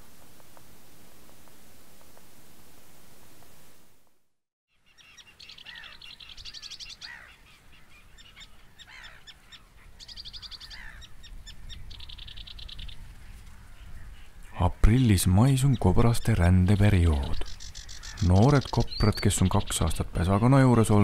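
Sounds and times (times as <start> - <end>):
songbirds singing: 4.7 - 21.0.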